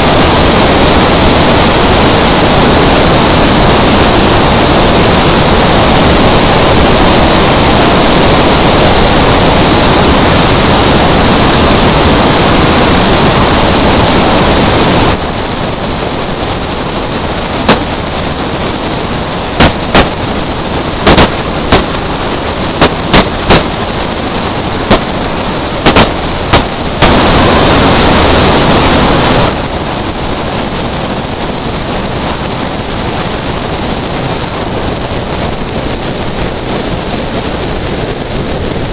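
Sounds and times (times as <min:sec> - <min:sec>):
car engine roaring: 0:00.0 - 0:38.9
rushing air: 0:00.0 - 0:38.9
sharp cracks: 0:17.6 - 0:18.8, 0:19.5 - 0:27.6.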